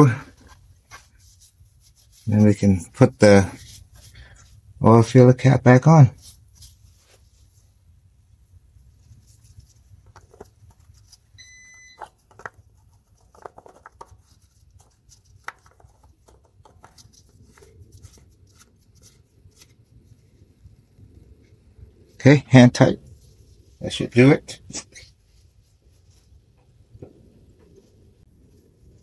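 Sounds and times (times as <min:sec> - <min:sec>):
short high electronic beep: 0:11.4 - 0:12.0.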